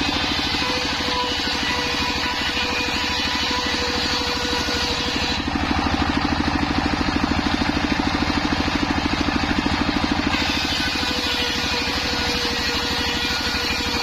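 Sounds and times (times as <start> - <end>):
saw blade cutting wood: 0.0 - 14.0
diesel engine thudding: 5.5 - 10.4.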